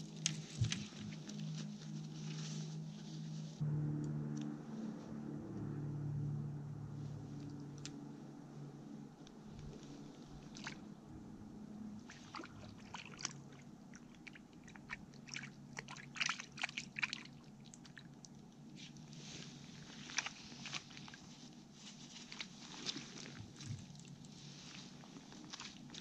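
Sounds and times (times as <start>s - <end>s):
water sloshing: 9.6s - 26.0s.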